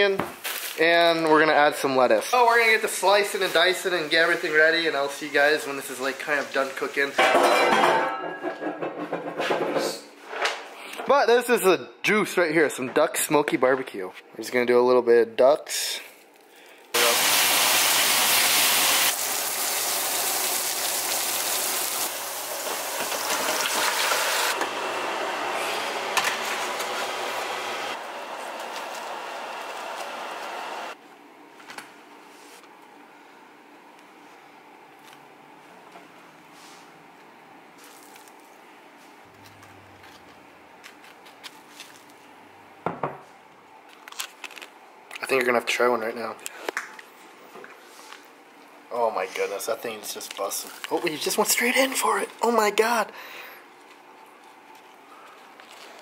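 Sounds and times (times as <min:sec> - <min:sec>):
meat sizzling in frying pan: 0:17.0 - 0:24.6
onion rings deep frying: 0:17.0 - 0:25.9.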